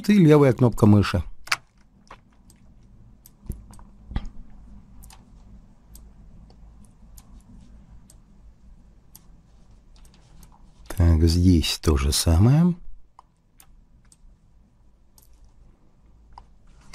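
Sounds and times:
low steady hum: 0:00.0 - 0:16.9
computer mouse clicks: 0:01.4 - 0:08.3, 0:09.1 - 0:10.6, 0:13.1 - 0:14.3, 0:15.1 - 0:15.6.

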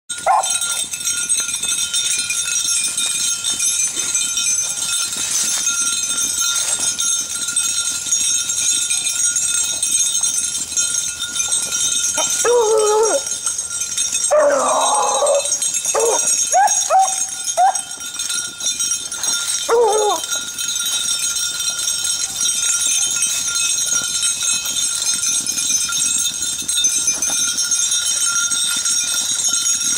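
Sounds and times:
dogs baying and yelping: 0:00.2 - 0:00.8, 0:11.6 - 0:13.6, 0:14.2 - 0:18.1, 0:19.2 - 0:20.4.

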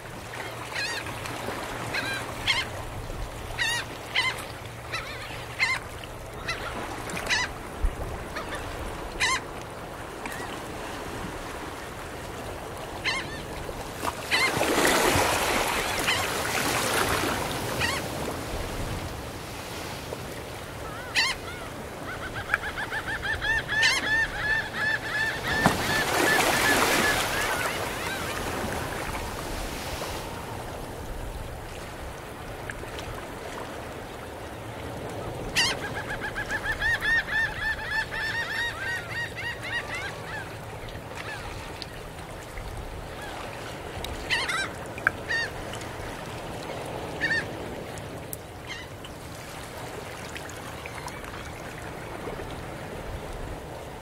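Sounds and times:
ocean waves on a beach: 0:00.0 - 0:54.0
seagulls calling: 0:00.3 - 0:01.1, 0:01.9 - 0:02.7, 0:03.6 - 0:07.6, 0:08.2 - 0:09.5, 0:13.0 - 0:13.6, 0:14.2 - 0:18.2, 0:20.8 - 0:29.2, 0:35.3 - 0:41.6, 0:44.2 - 0:45.6, 0:47.0 - 0:47.7, 0:48.6 - 0:48.9.

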